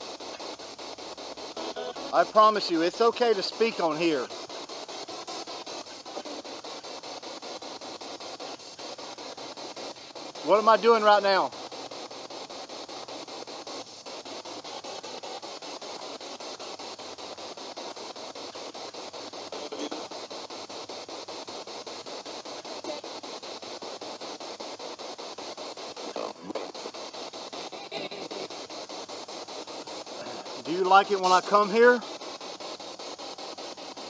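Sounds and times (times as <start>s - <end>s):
radio static with choppy flutter: 0.0s - 34.0s
brief radio blips: 1.5s - 4.3s, 19.5s - 20.2s.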